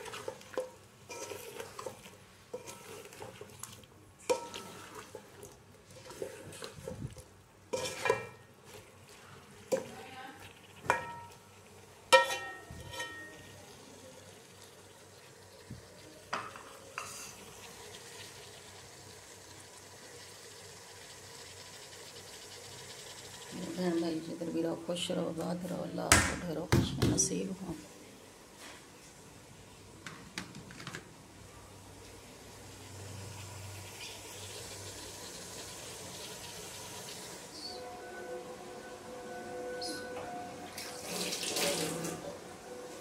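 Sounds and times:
faint hiss of food cooking: 0:00.0 - 0:43.0
spoon clanking against pot: 0:10.8 - 0:11.4, 0:12.1 - 0:13.4.

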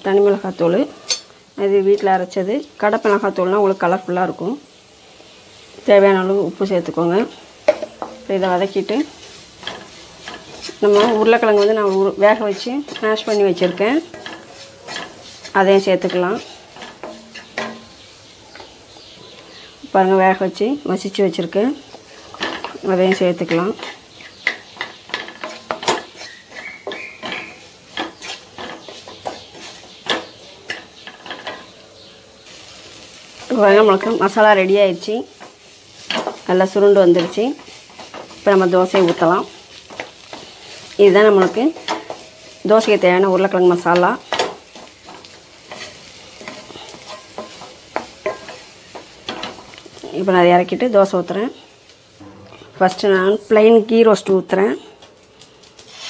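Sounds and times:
light frying sizzle: 0:00.0 - 0:56.0
wooden spatula scraping a pan: 0:07.2 - 0:18.8, 0:21.3 - 0:31.8, 0:32.5 - 0:50.3, 0:55.8 - 0:56.0.

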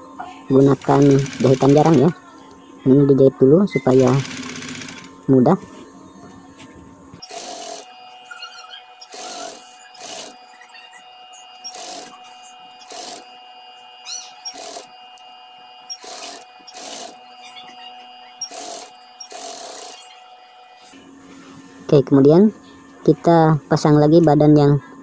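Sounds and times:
motor hum: 0:00.0 - 0:24.9
sewing machine stitching: 0:00.6 - 0:02.1, 0:03.9 - 0:05.1, 0:07.2 - 0:07.9, 0:09.0 - 0:10.4, 0:11.6 - 0:12.2, 0:12.8 - 0:13.3, 0:14.4 - 0:14.9, 0:15.9 - 0:17.2, 0:18.4 - 0:20.0.

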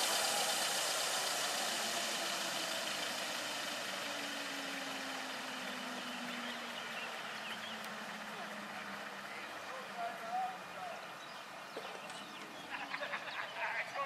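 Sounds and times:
model helicopter winding down: 0:00.0 - 0:10.0.

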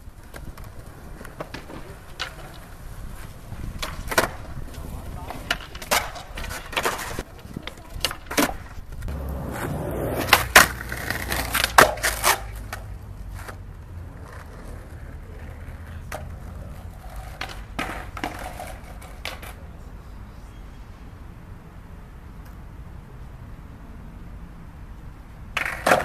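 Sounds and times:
skateboard clacking: 0:00.0 - 0:19.7, 0:25.5 - 0:26.0
skateboard wheels rolling on concrete: 0:00.0 - 0:26.0.

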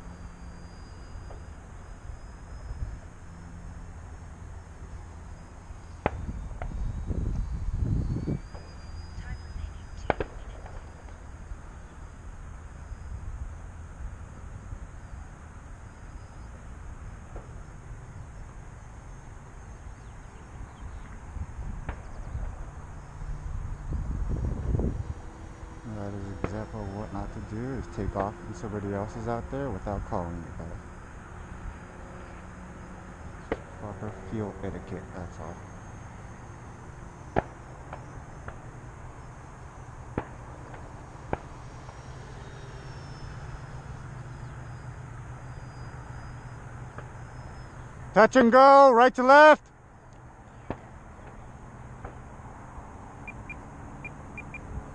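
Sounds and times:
faint high-pitched tone: 0:00.0 - 0:03.7, 0:05.0 - 0:12.2
electric model plane motor whine: 0:00.0 - 0:10.1, 0:10.7 - 0:33.6, 0:34.4 - 0:48.0
wind buffeting microphone: 0:06.0 - 0:10.8, 0:20.5 - 0:29.3.

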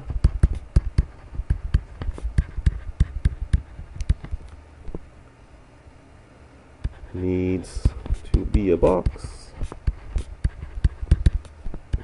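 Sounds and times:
stylus tapping on tablet: 0:00.1 - 0:04.4, 0:07.8 - 0:09.2, 0:09.8 - 0:12.0.

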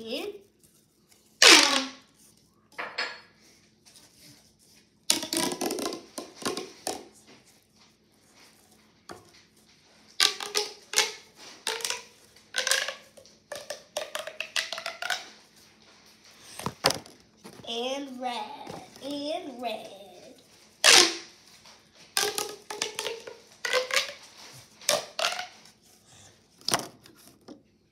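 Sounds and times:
plastic pop tube popping: 0:01.4 - 0:02.0, 0:05.1 - 0:07.2, 0:10.2 - 0:15.3, 0:20.8 - 0:21.3, 0:22.2 - 0:24.2, 0:24.9 - 0:25.6.

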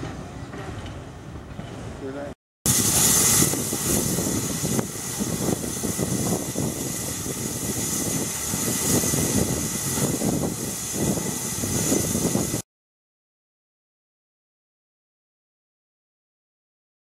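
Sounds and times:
steam hissing: 0:02.7 - 0:12.6
wind rumble on microphone: 0:02.7 - 0:12.6.

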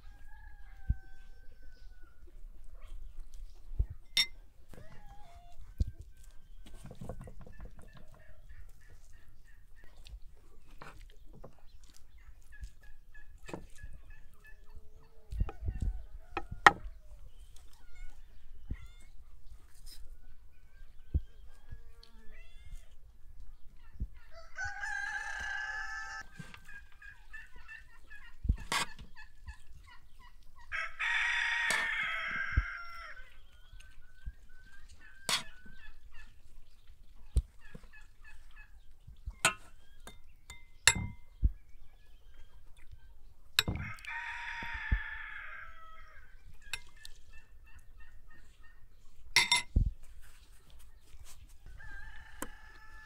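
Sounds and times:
rooster crowing: 0:00.0 - 0:02.2, 0:24.3 - 0:26.3, 0:30.7 - 0:33.3, 0:43.8 - 0:46.2, 0:51.7 - 0:53.0.

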